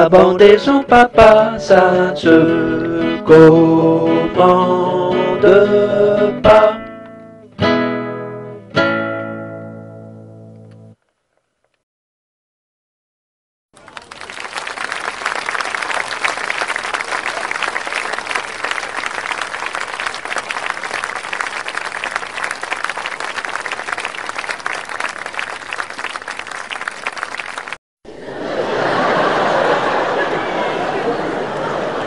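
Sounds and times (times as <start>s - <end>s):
audience applauding: 13.8s - 27.8s.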